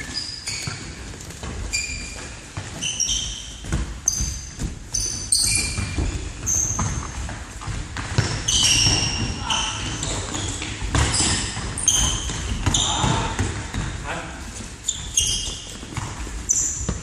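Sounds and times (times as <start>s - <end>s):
shoes squeaking on floor: 0.0s - 17.0s
running feet thudding: 0.5s - 14.0s.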